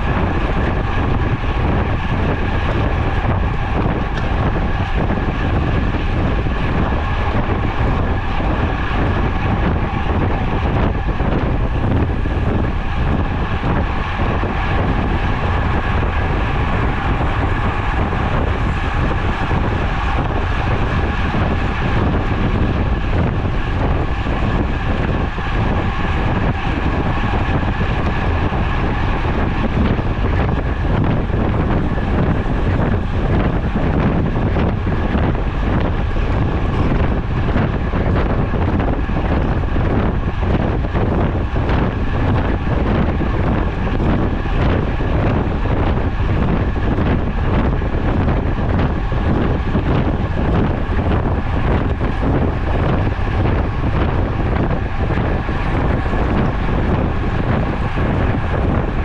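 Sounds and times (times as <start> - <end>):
bicycle tyre and road noise: 0.0 - 59.0
wind buffeting microphone: 0.0 - 59.0.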